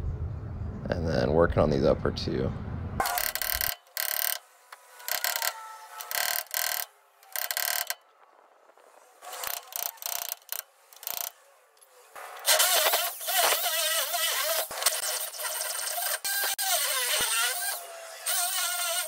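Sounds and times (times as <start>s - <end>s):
hammer drill boring metal: 3.0s - 8.0s, 9.3s - 11.4s.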